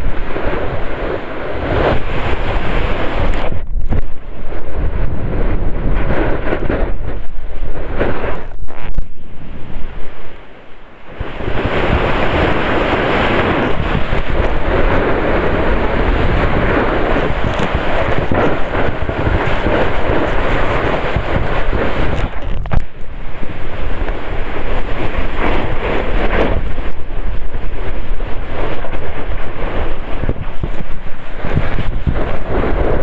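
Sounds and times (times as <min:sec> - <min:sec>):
snowboard scraping over snow: 0:00.0 - 0:33.0
wind buffeting microphone: 0:00.0 - 0:33.0.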